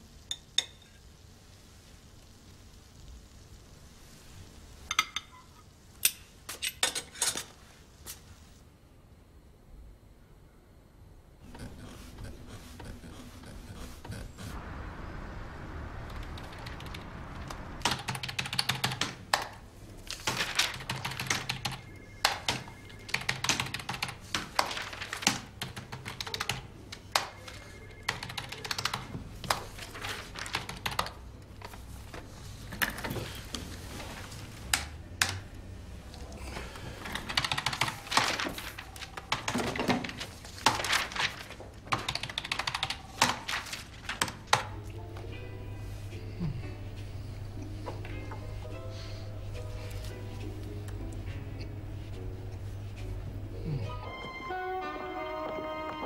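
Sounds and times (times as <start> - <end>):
low steady hum: 0.0 - 26.0.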